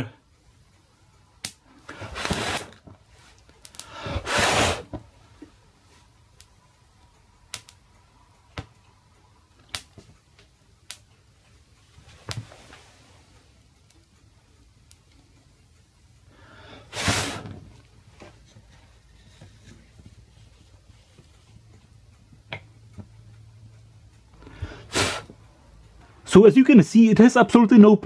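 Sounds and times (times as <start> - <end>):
wood crackling and popping: 1.4 - 4.1, 7.4 - 16.2
short hissing bursts: 3.9 - 5.0, 16.8 - 17.6, 24.7 - 25.4.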